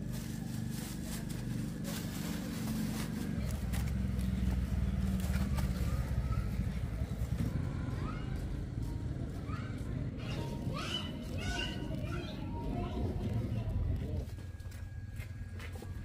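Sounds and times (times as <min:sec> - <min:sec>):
plastic bag rustling: 0:00.0 - 0:06.0
vehicle engine humming: 0:00.0 - 0:16.0.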